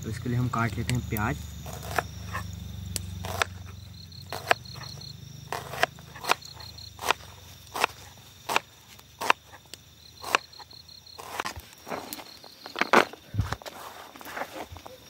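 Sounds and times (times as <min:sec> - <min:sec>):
insects chirping: 0:00.0 - 0:15.0
knife chopping onion on board: 0:01.7 - 0:02.4, 0:03.2 - 0:03.6, 0:04.3 - 0:09.4.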